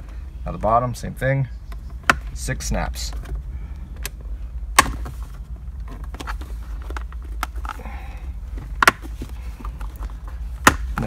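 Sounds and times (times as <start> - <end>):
low steady hum: 0.0 - 11.0
handling rustle: 3.0 - 11.0.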